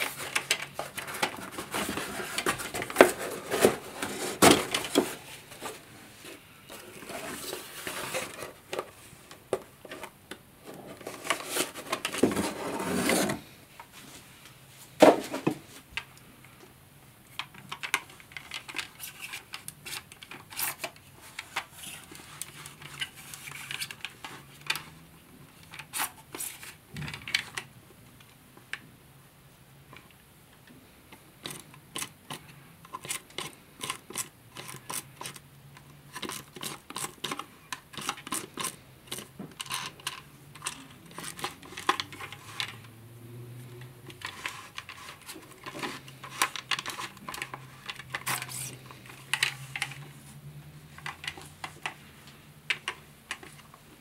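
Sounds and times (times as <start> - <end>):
cardboard rustling and scraping: 0.0 - 15.9, 44.0 - 52.4.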